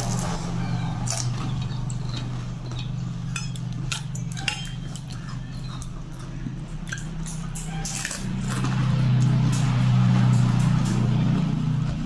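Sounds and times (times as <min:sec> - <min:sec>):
spoon clinking on steel plates: 0:01.9 - 0:06.0.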